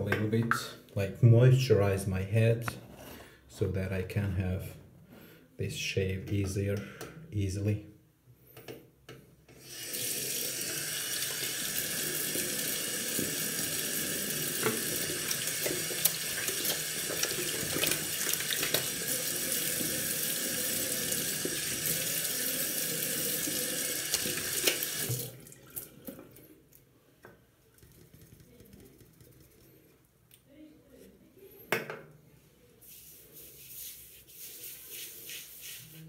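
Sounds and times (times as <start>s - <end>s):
water dripping: 11.0s - 26.8s
tap running into sink: 12.2s - 20.0s
water splashing: 14.6s - 19.9s.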